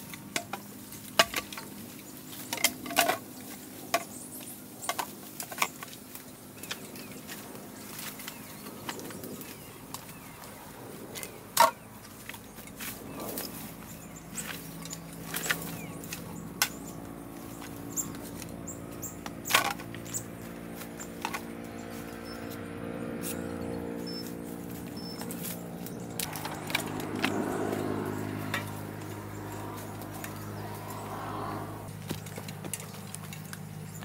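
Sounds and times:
small engine running: 12.0 - 34.0.

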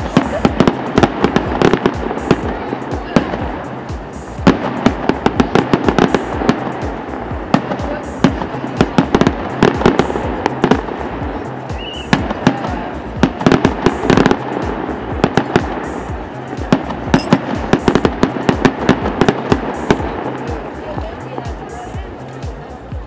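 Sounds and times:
fireworks bangs: 0.0 - 22.1.

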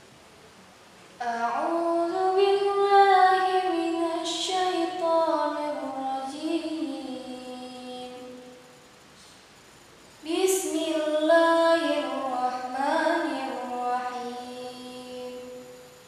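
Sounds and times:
girl chanting melodically: 1.2 - 8.5, 10.2 - 15.7.

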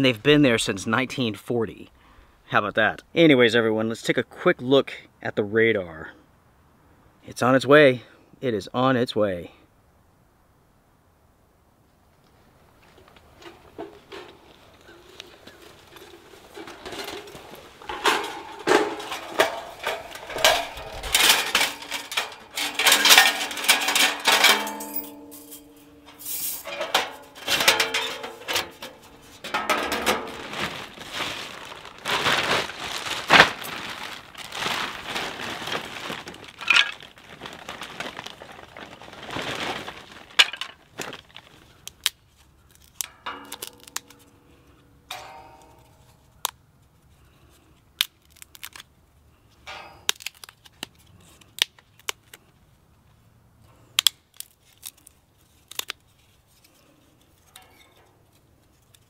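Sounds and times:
plastic bag rustling: 12.8 - 41.8
sheet metal clinking and rattling: 15.5 - 30.8, 45.1 - 46.2.

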